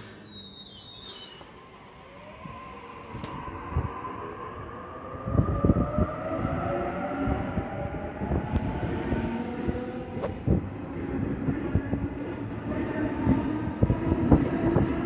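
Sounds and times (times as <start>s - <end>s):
electric train motor whine: 5.2s - 15.0s.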